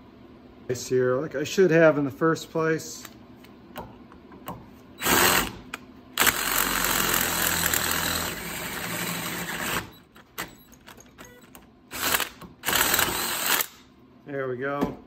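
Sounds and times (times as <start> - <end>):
cordless drill boring into steel: 5.0 - 5.5, 6.2 - 9.9, 11.9 - 13.8.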